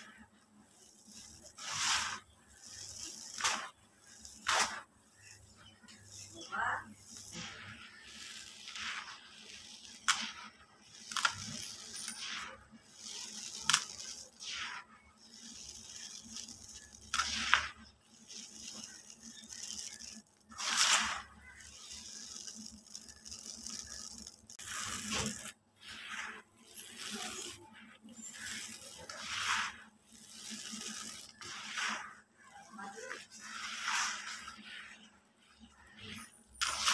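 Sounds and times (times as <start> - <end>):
small pieces clicking on bucket: 10.9 - 14.4, 15.3 - 25.5.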